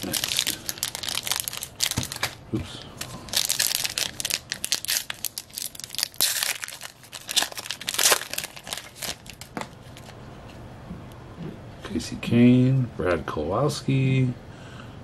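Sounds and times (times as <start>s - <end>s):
foil wrapper crinkling and ripping: 0.0s - 2.4s, 3.0s - 10.1s.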